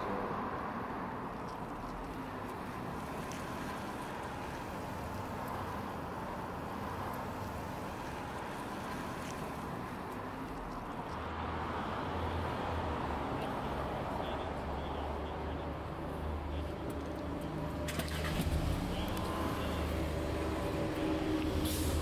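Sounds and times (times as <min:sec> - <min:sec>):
vehicle engine humming: 0:00.0 - 0:22.0.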